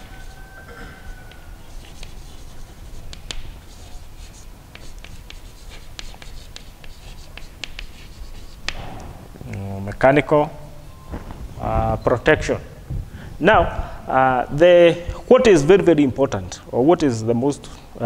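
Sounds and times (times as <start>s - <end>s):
chalk tapping and scratching: 0.0s - 8.9s.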